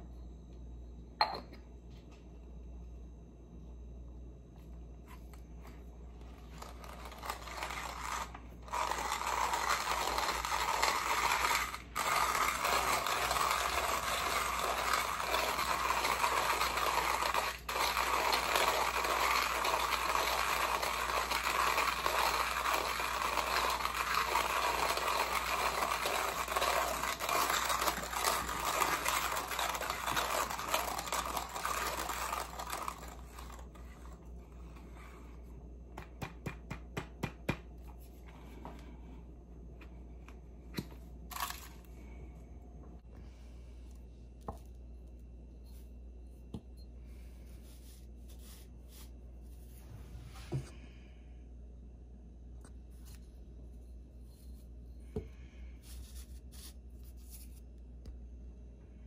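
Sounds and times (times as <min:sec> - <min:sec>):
hand coffee grinder grinding beans: 0:06.2 - 0:35.2, 0:41.3 - 0:41.8.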